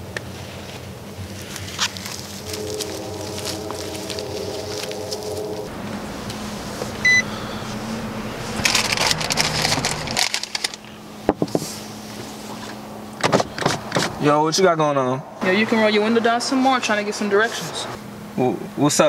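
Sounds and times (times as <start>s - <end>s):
steady hum: 1.0s - 13.6s
short electronic beep: 7.0s - 7.8s.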